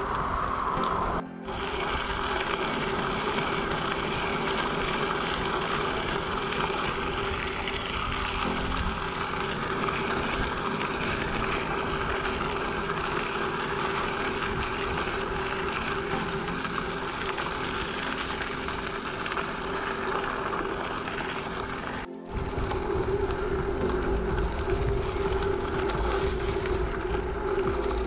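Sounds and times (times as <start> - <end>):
wind rushing on microphone: 0.0 - 16.2, 21.8 - 28.0
bicycle tyres on gravel: 0.0 - 28.0
steady hum: 0.0 - 28.0.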